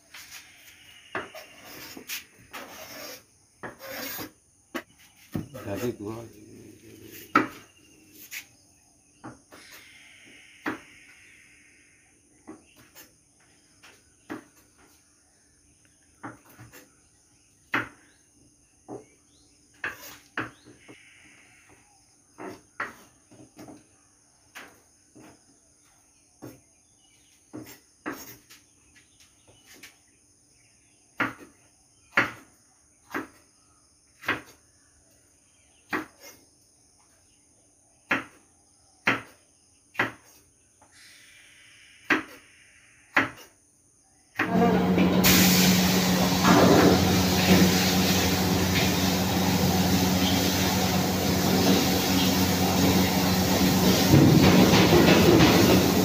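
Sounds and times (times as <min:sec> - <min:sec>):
knife chopping on wooden board: 0:07.3 - 0:07.6, 0:32.1 - 0:32.4, 0:33.0 - 0:33.4, 0:34.2 - 0:34.6, 0:35.9 - 0:36.3, 0:38.1 - 0:38.4, 0:39.0 - 0:39.4, 0:40.0 - 0:40.4, 0:43.1 - 0:43.5.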